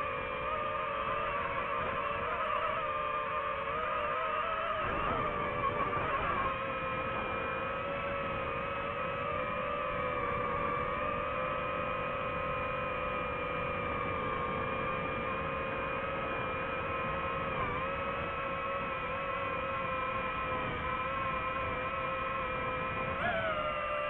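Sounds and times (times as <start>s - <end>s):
drone propellers humming: 0.0s - 24.0s.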